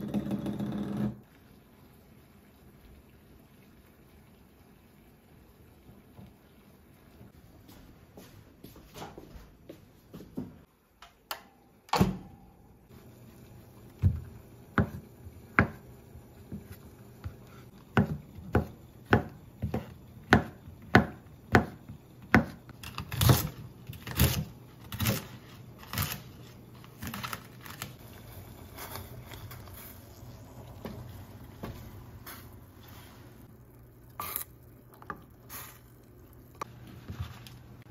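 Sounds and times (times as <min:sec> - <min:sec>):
knife chopping on wooden board: 0:17.9 - 0:23.5.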